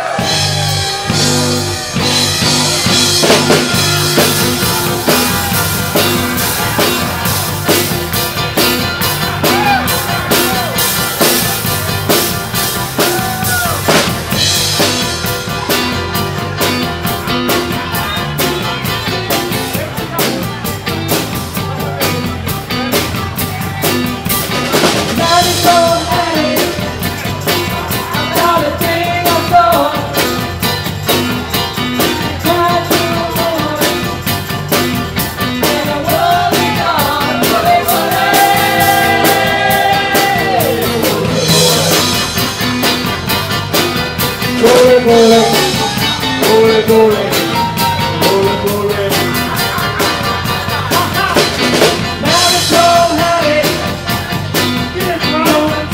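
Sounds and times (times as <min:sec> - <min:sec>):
drum kit: 0:00.0 - 0:55.9
electric guitars: 0:00.0 - 0:55.9
keyboard: 0:00.0 - 0:55.9
person singing: 0:24.8 - 0:34.4, 0:35.4 - 0:42.6, 0:44.4 - 0:55.9.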